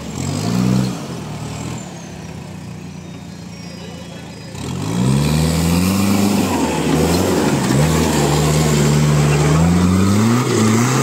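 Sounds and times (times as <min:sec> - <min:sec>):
diesel engine revving hard: 0:00.0 - 0:02.1, 0:04.3 - 0:11.0.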